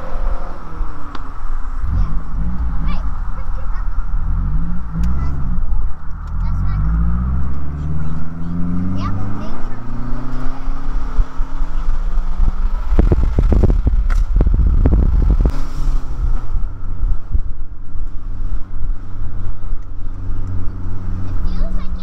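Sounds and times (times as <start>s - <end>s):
car engine running: 0.0s - 22.0s
road rumble: 0.0s - 22.0s
wind buffeting microphone: 11.0s - 17.9s.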